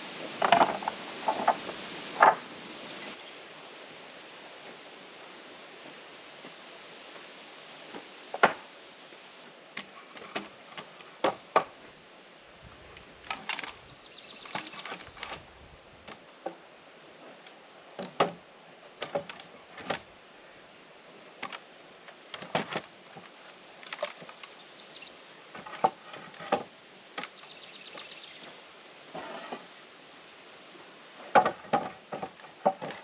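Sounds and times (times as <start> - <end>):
wooden boards knocking: 0.4 - 1.6, 2.2 - 2.4, 31.3 - 33.0.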